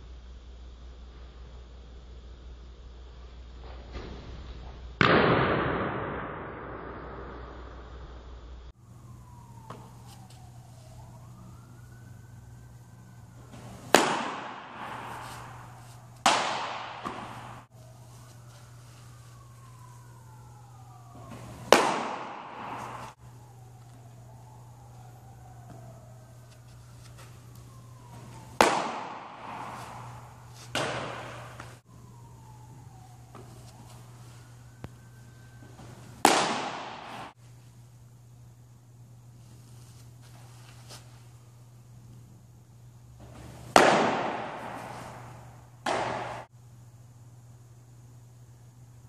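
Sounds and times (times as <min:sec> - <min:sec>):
baseball smacking into catcher's glove: 0:13.5 - 0:17.6, 0:21.2 - 0:23.1, 0:28.1 - 0:31.8, 0:35.8 - 0:37.3, 0:43.2 - 0:46.5.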